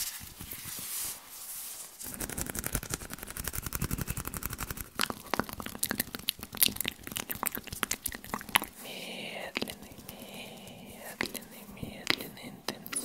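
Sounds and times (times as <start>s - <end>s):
mouth clicks and pops: 2.1s - 8.8s, 9.4s - 13.0s.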